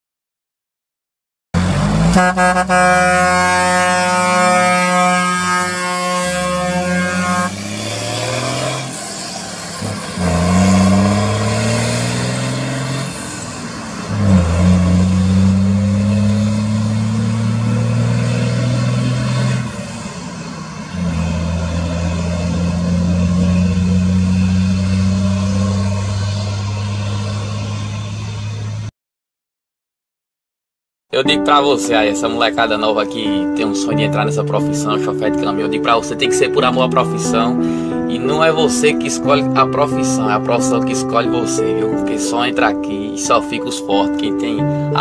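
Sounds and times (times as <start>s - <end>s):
diesel engine accelerating: 1.6s - 28.9s, 31.3s - 45.0s
truck air horn: 1.9s - 9.0s.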